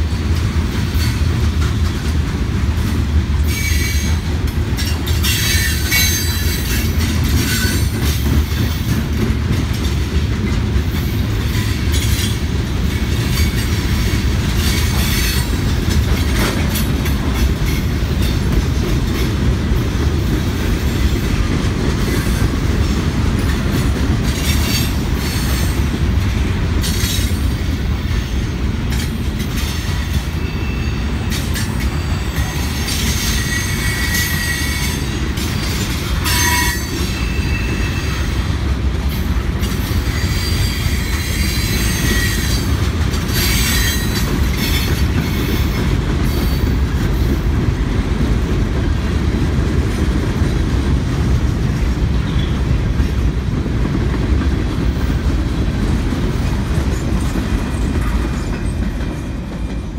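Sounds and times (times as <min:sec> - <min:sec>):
train wheels rumbling on rails: 0:00.0 - 0:59.9
high-pitched wheel squeals: 0:30.3 - 0:35.1, 0:36.2 - 0:38.2, 0:40.1 - 0:42.7.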